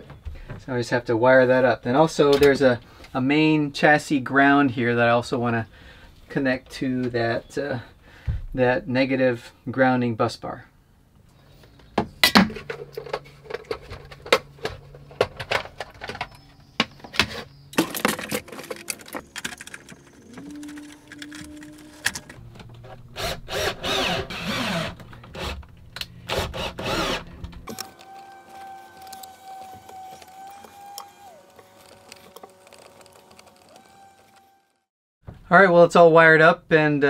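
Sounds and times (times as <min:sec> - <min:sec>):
clicks and rattles of wires: 0:12.2 - 0:23.0, 0:27.4 - 0:34.4.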